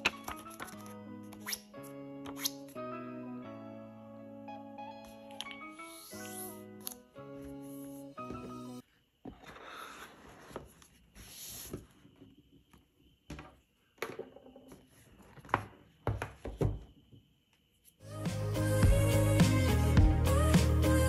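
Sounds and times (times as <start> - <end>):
music: 0.0 - 8.8, 18.0 - 21.0
cardboard box sliding on wood: 9.3 - 11.9.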